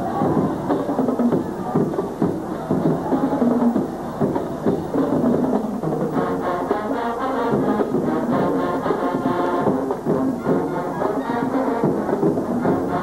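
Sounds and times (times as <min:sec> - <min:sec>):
marching drums beat: 0:00.0 - 0:13.0
brass section playing tune: 0:05.0 - 0:13.0.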